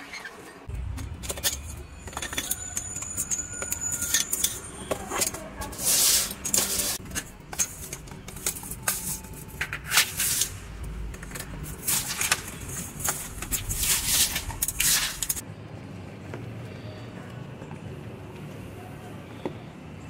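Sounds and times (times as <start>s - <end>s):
broom sweeping tiled floor: 3.3s - 15.4s.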